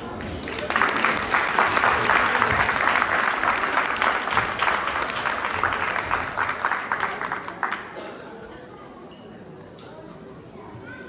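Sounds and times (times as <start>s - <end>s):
audience applauding: 0.2s - 8.0s.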